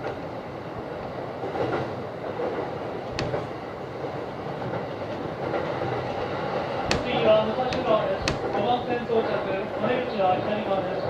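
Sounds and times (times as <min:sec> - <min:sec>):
train wheel and track noise: 0:00.0 - 0:11.0
sharp click: 0:03.1 - 0:03.5, 0:06.9 - 0:08.6.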